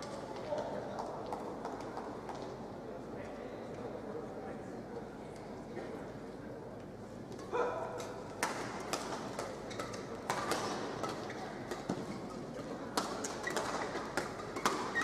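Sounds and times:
rackets hitting shuttlecock: 0:08.0 - 0:15.0.

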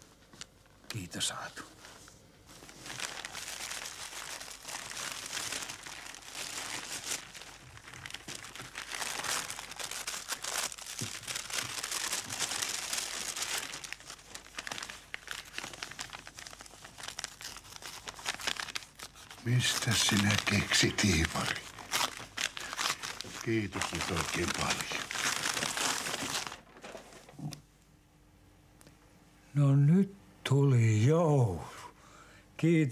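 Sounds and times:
wrapping paper crinkling: 0:01.3 - 0:27.4.

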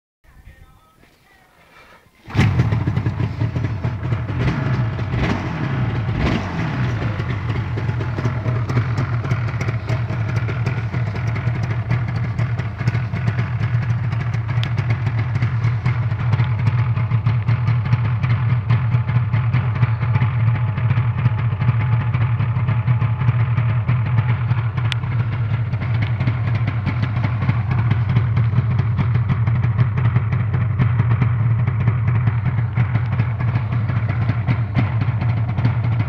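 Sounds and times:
two-stroke motorcycle engine revving: 0:02.2 - 0:36.0.

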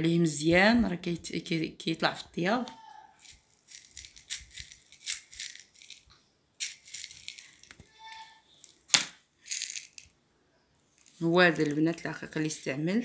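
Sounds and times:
sugar pearls rattling in jar: 0:03.2 - 0:07.8, 0:09.4 - 0:10.1.

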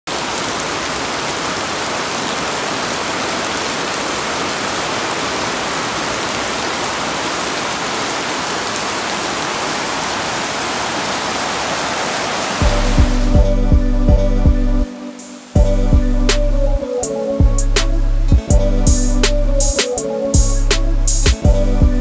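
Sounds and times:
heavy rain on foliage: 0:00.0 - 0:13.7, 0:14.8 - 0:15.9.

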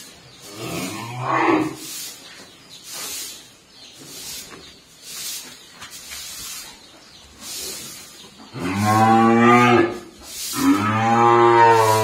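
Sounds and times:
cattle mooing: 0:10.6 - 0:12.0.

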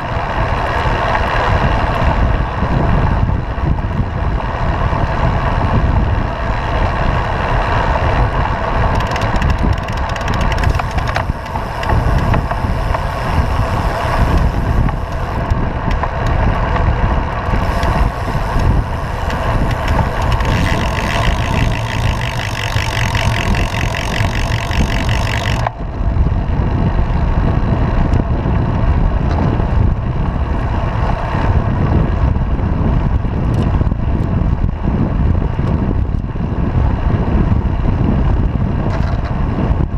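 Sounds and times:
wind rumble on microphone: 0:00.0 - 0:39.9.

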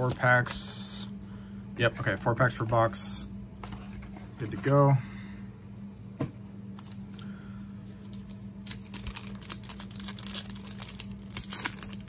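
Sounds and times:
foil wrapper crinkling and tearing: 0:08.0 - 0:12.0.

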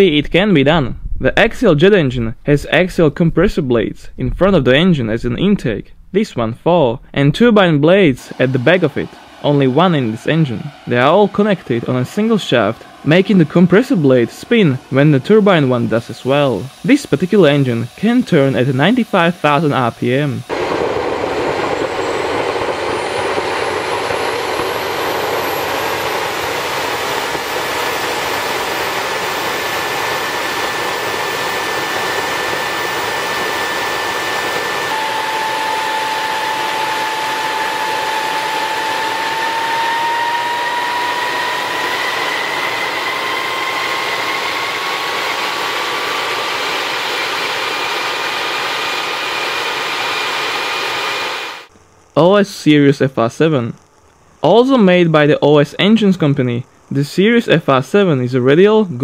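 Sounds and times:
lower whine rising: 0:00.0 - 0:52.2
high whine: 0:00.0 - 0:59.0
jet engine roaring: 0:07.7 - 0:51.7.

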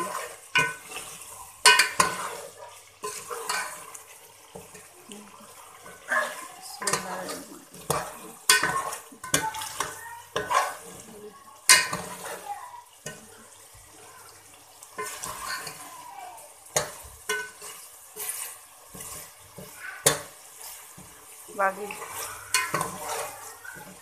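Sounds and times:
spoon scraping a metal pot: 0:00.0 - 0:04.0, 0:05.8 - 0:12.4, 0:15.0 - 0:15.8, 0:16.7 - 0:24.0
faint sizzle: 0:00.0 - 0:24.0.

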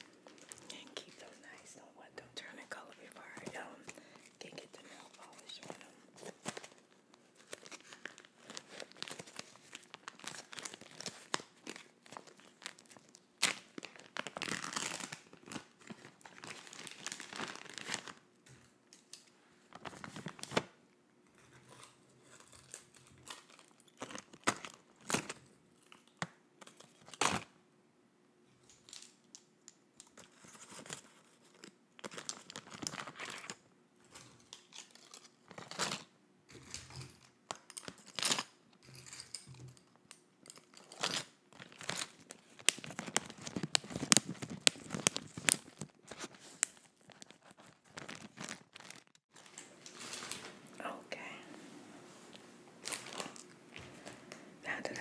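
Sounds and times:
plastic bag crinkling: 0:00.0 - 0:01.8, 0:02.5 - 0:18.2, 0:30.3 - 0:33.6, 0:40.4 - 0:50.7, 0:52.8 - 0:54.2.

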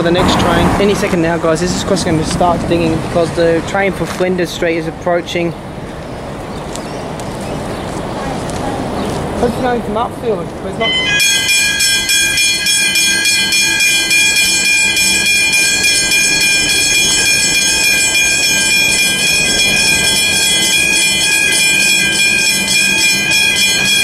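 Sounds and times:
level crossing bells ringing: 0:10.7 - 0:24.0.

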